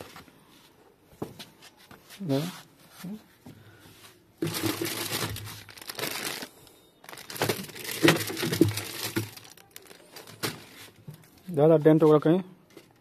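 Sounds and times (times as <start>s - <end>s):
plastic packaging crinkling: 4.4s - 10.8s.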